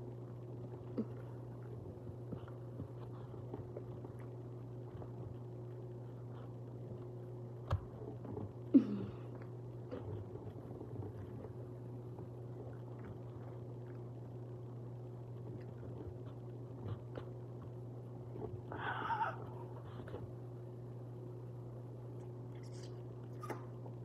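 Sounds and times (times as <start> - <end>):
soft chewing: 0.0 - 20.6, 22.0 - 24.0
steady low hum: 0.0 - 24.0.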